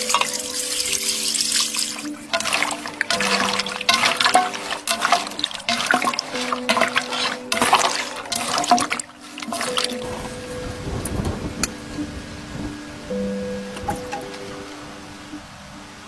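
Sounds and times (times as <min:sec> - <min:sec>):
wet squelching and slapping of meat: 0:01.8 - 0:10.0.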